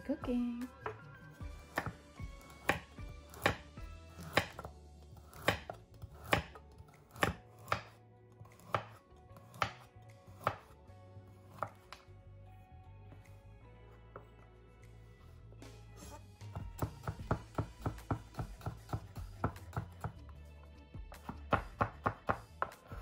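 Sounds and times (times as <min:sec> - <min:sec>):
knife slicing carrot on board: 0:01.6 - 0:12.1, 0:16.0 - 0:20.3, 0:21.1 - 0:23.0.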